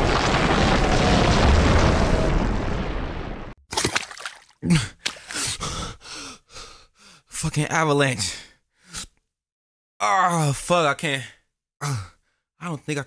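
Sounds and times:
avalanche rumble: 0.0s - 3.6s
man gasping and groaning: 4.6s - 7.4s, 8.2s - 9.2s, 11.2s - 12.4s.

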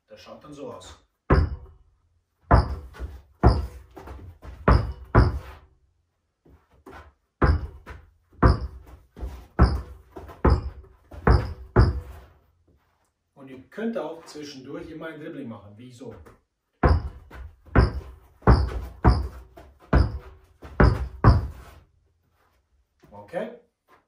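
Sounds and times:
basketball bouncing on carpet: 1.3s - 1.7s, 2.4s - 5.6s, 6.8s - 12.3s, 16.2s - 21.8s.

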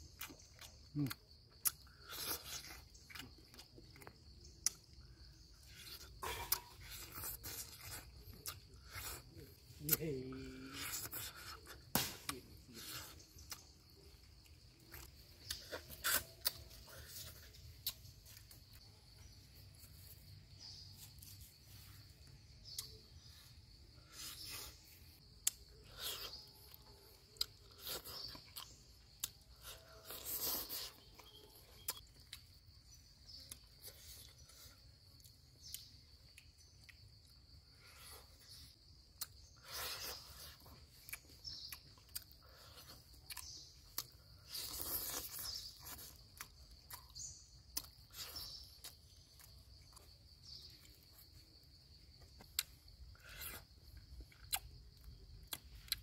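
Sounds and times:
person chewing fish: 0.0s - 4.9s, 25.4s - 32.6s, 39.2s - 50.2s, 52.6s - 56.0s
insects buzzing: 0.0s - 56.0s
wet mouth clicks: 14.9s - 16.9s, 17.5s - 18.1s, 22.6s - 23.0s, 52.6s - 54.7s
small crunches: 33.2s - 51.4s, 52.1s - 56.0s.

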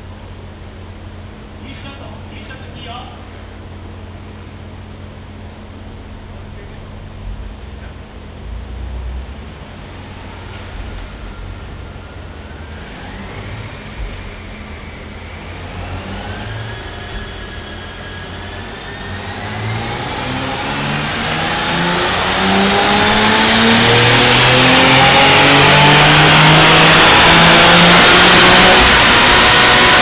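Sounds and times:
car engine revving at full throttle: 6.1s - 30.0s.

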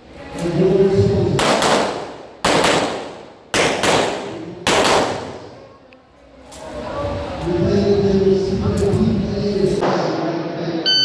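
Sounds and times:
pistol shots with ringing tail: 1.4s - 5.4s.

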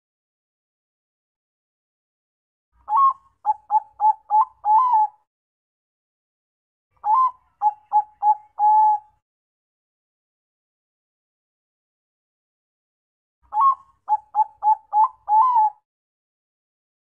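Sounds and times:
dove cooing: 2.9s - 5.2s, 7.0s - 9.2s, 13.5s - 15.8s.

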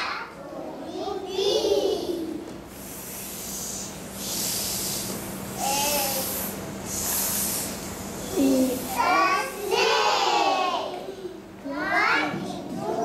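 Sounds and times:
children's voices: 0.0s - 2.6s, 5.6s - 13.0s
children hissing: 1.6s - 11.4s.

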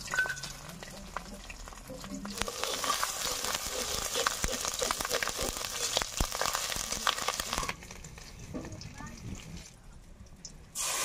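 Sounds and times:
food sizzling in hot oil: 0.0s - 9.6s, 10.8s - 11.0s
metal spatula scraping a pan: 2.3s - 6.8s.

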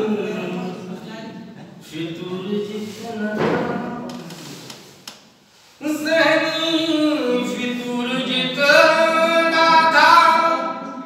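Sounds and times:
person singing unaccompanied: 5.8s - 11.0s.

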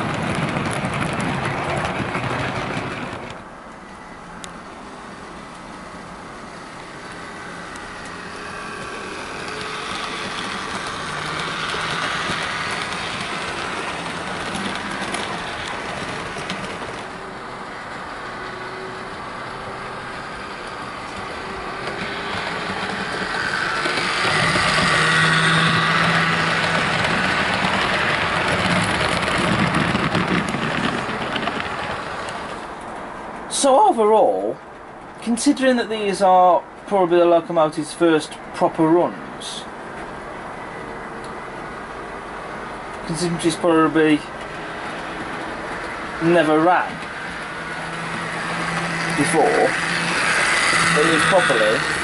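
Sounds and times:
wheels rumbling on rails: 0.0s - 52.0s
model train motor whirring: 6.8s - 17.2s, 18.0s - 32.5s, 45.7s - 52.0s.

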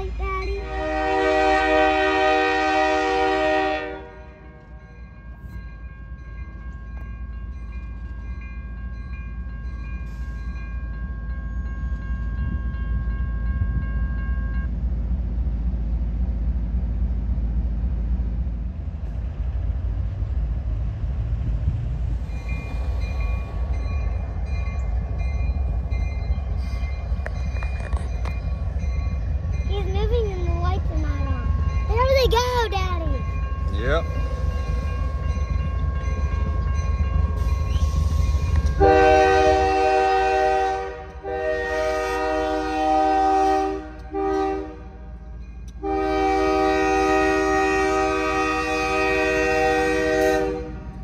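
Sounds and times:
crossing bell ringing: 0.0s - 14.8s, 22.2s - 51.0s
locomotive air horn blast: 0.6s - 4.4s, 38.7s - 45.1s, 45.8s - 50.9s.

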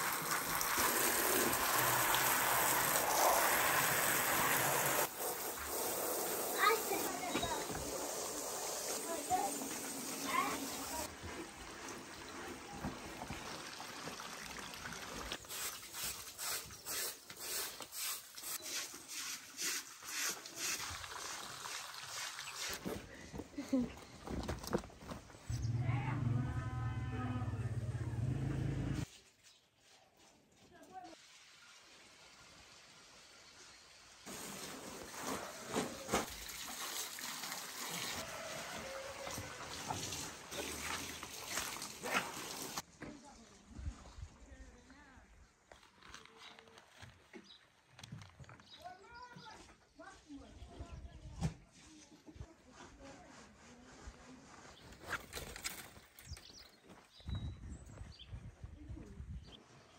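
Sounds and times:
water trickling and splashing: 0.0s - 23.2s, 30.4s - 44.8s
brush scrubbing wet carpet: 5.0s - 12.0s, 15.5s - 21.0s
faint trickling water: 6.6s - 15.7s.

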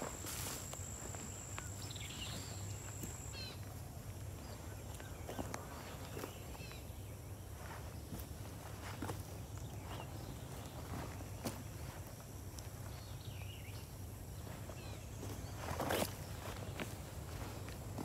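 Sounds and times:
footsteps through brush: 0.0s - 3.6s, 14.4s - 18.0s
small bird chirping: 0.1s - 3.6s.

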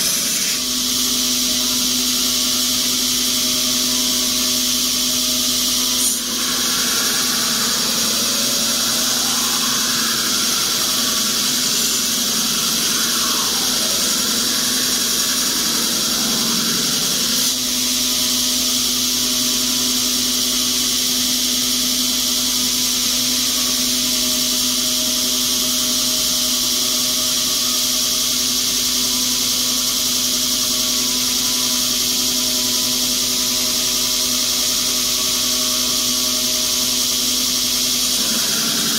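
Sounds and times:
belt grinder hiss and hum: 0.0s - 38.9s
rasping grind of blade: 5.8s - 17.6s.

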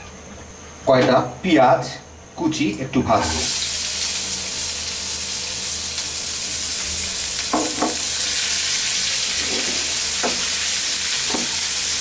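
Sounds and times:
onions sizzling in a frying pan: 3.2s - 12.0s.

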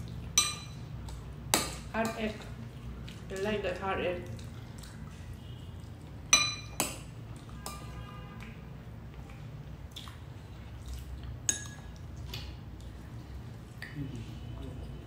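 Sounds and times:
spoon clinking on ceramic dishes: 0.4s - 0.9s, 6.3s - 8.0s, 11.5s - 11.9s.

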